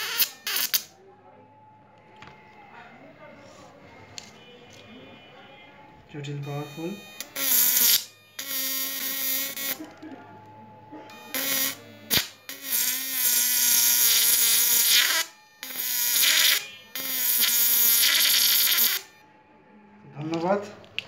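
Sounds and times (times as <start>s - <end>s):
harsh electric arc buzzing: 0.0s - 0.9s, 6.6s - 9.9s, 11.1s - 19.2s
sharp electric snap: 0.0s - 0.9s, 7.3s - 9.8s, 11.4s - 19.1s.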